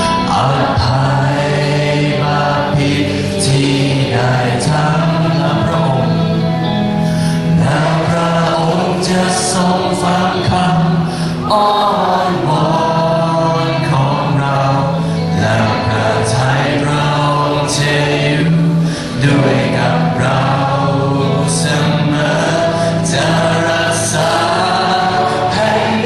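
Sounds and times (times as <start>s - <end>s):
group singing worship song: 0.0s - 26.0s.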